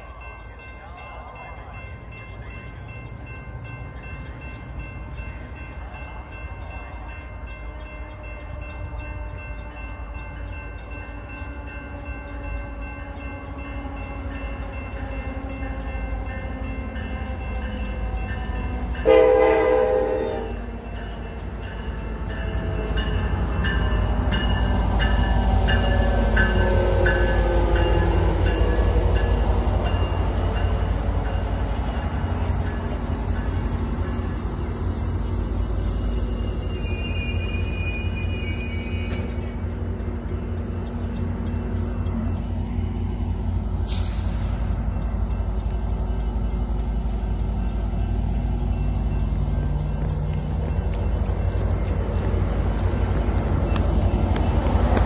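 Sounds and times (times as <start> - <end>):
diesel locomotive engine rumble: 0.0 - 55.0
train horn blast: 19.0 - 20.7.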